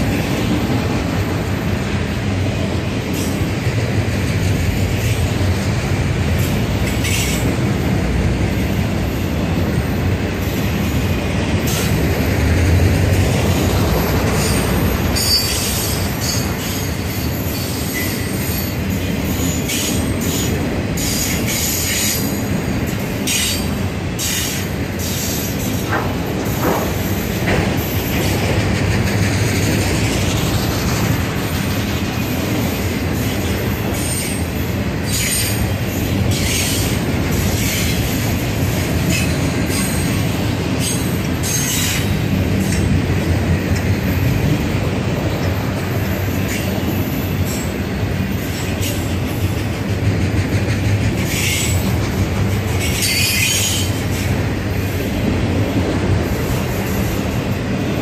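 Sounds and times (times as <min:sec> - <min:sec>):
freight train wheels rumbling: 0:00.0 - 0:58.0
wheel squeals: 0:52.8 - 0:54.2.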